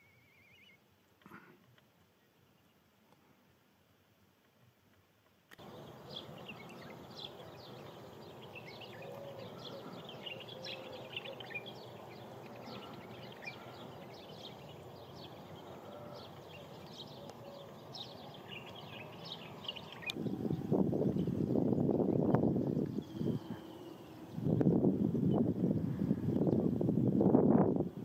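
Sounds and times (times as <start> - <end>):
small birds chirping and twittering: 0.0 - 0.8, 5.5 - 26.9
low background noise: 0.0 - 28.0.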